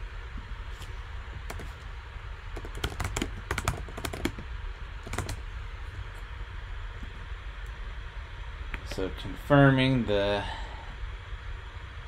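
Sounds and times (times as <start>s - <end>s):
computer keyboard typing: 1.5s - 1.8s, 2.6s - 4.4s, 5.0s - 5.4s.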